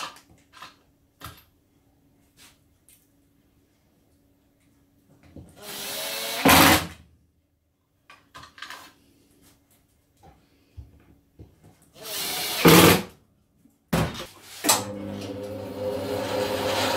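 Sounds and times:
drill driving a screw: 5.6s - 7.0s, 12.0s - 13.1s.

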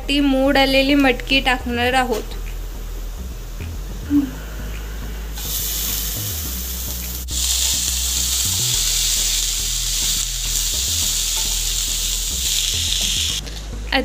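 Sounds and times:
beans sizzling in oil: 5.4s - 13.4s.

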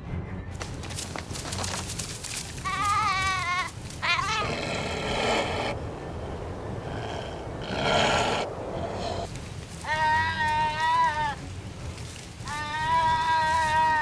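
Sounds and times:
sheep bleating: 2.6s - 5.7s, 7.0s - 11.4s, 12.4s - 14.0s.

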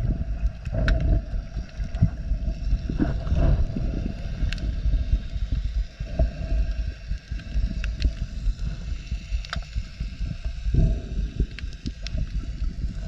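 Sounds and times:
muffled underwater water rumble: 0.0s - 13.0s
faint sharp clicks: 9.3s - 9.8s, 11.5s - 12.4s.

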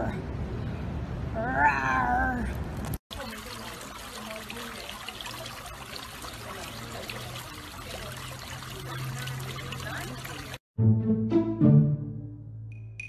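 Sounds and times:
water trickling in fountain: 2.8s - 10.6s.

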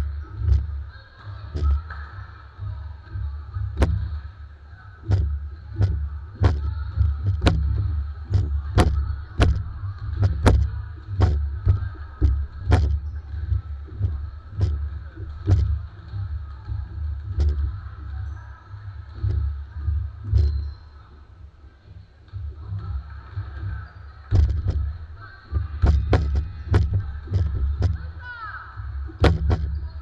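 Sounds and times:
basketball bouncing on wood floor: 3.2s - 4.2s, 5.0s - 18.4s, 29.2s - 30.0s.

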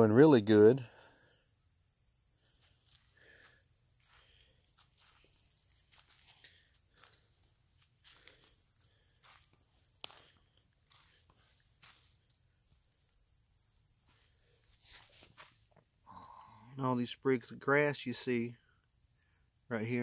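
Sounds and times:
faint insect trill: 0.0s - 20.0s
footsteps on sandy soil: 2.5s - 12.4s, 14.0s - 15.8s.

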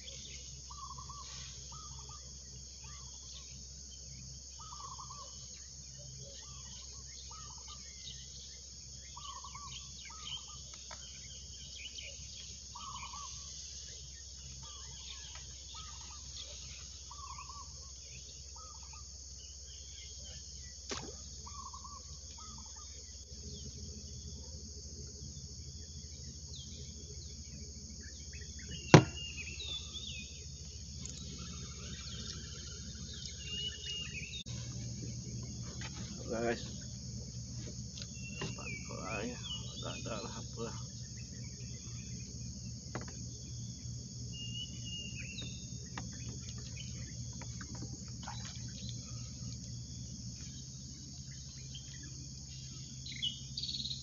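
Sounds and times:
insects trilling: 0.0s - 54.0s
short chirping calls: 28.3s - 37.0s.

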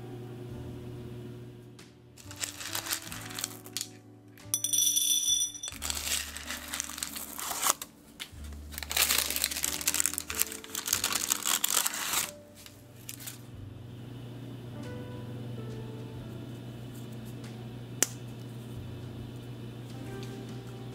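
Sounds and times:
background music: 0.0s - 20.9s
parchment paper crinkling: 2.2s - 4.0s, 5.8s - 13.4s.

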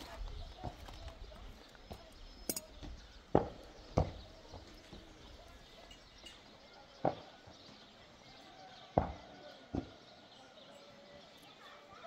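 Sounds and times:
light metallic clink: 2.4s - 2.9s, 5.8s - 6.5s.

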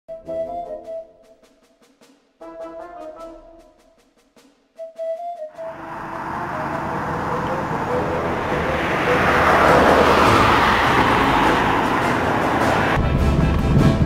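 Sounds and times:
car approaching: 5.6s - 13.6s.

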